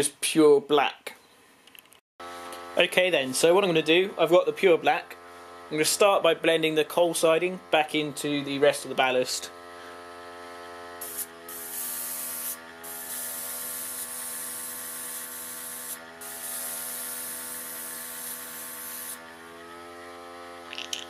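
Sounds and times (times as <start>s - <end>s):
air compressor humming: 2.2s - 21.0s
airbrush spraying hiss: 11.0s - 19.2s.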